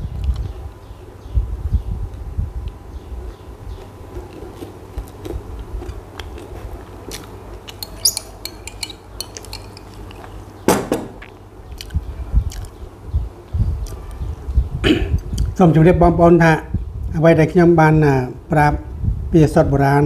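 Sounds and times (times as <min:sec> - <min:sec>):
spoon scraping a jar: 0:07.7 - 0:10.3.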